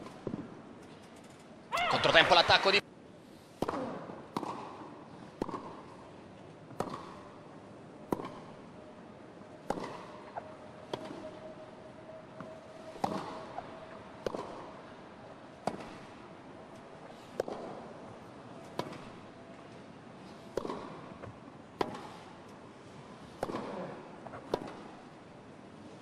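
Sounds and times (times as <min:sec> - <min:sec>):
racket strings hitting ball: 0:06.8 - 0:07.2, 0:09.6 - 0:11.2, 0:12.9 - 0:14.8, 0:15.6 - 0:16.1, 0:17.3 - 0:18.0, 0:18.6 - 0:19.2, 0:20.5 - 0:22.2, 0:23.3 - 0:25.0.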